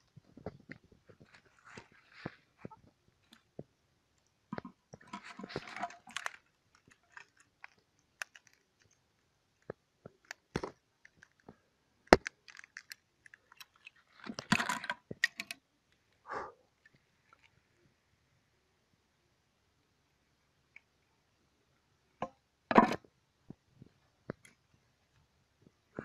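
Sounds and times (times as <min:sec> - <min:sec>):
fibreglass parts clicking and crackling: 0:04.5 - 0:16.0.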